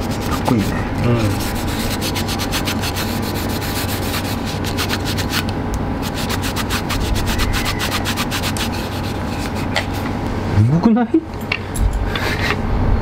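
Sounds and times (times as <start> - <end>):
cloth rubbing wood: 0.0 - 10.2.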